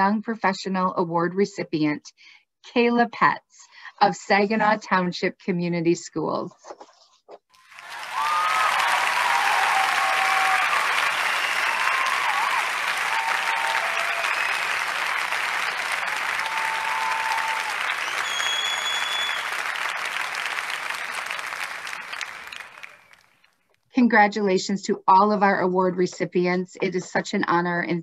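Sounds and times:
audience applauding: 7.6 - 23.4.

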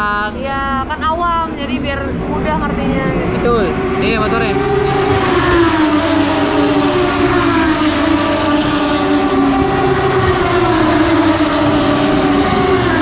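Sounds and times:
racing motorcycle engines revving: 0.0 - 13.0.

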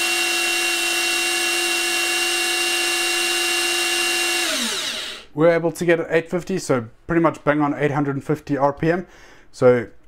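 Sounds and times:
drill motor whining: 0.0 - 5.3.

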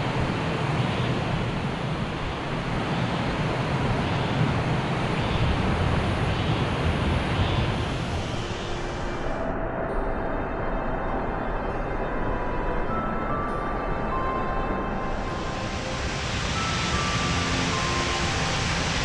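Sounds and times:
faint music: 3.8 - 19.0
mountain stream rushing: 15.0 - 19.0.

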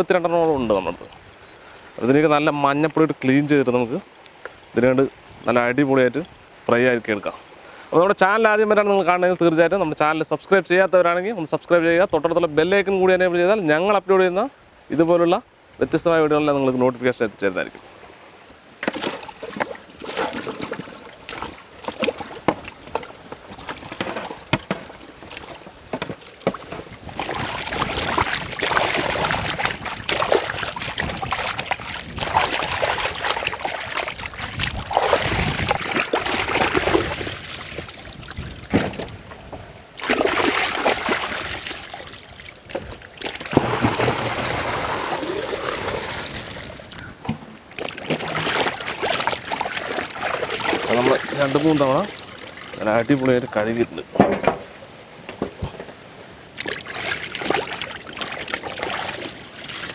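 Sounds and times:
water sloshing and splashing in pot: 18.8 - 39.1, 40.0 - 46.9, 47.7 - 54.4, 56.5 - 59.9
clicks and knocks: 54.2 - 54.7.

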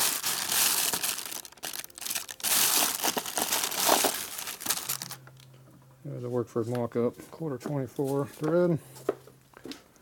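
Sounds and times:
rummaging through parts by hand: 2.8 - 5.2.

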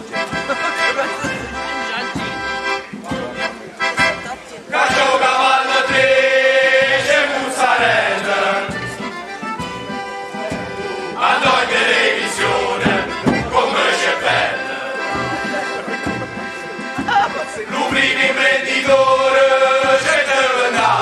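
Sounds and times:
accordion: 0.0 - 21.0
low regular beat: 0.0 - 21.0
men singing in chorus: 4.7 - 8.9, 11.0 - 15.6, 17.6 - 21.0.

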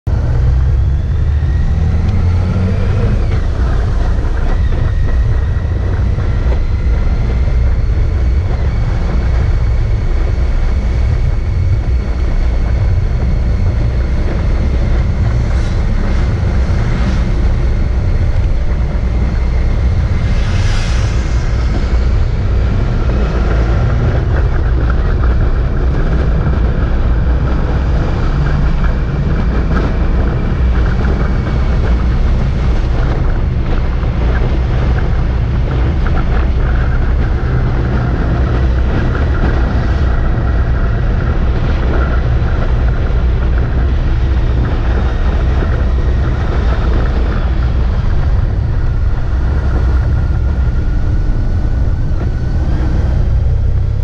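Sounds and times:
road noise: 0.0 - 54.0
wind rumble on microphone: 0.0 - 54.0
motorcycle engine: 0.1 - 54.0
faint high whine: 0.4 - 25.5.

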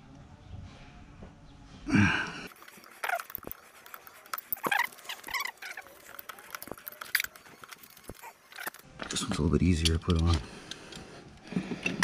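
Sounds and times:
short squeaks: 4.4 - 8.8.

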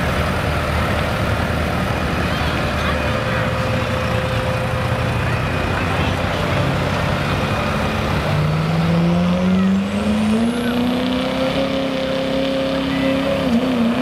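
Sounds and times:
diesel truck engine at full throttle: 0.0 - 14.0.

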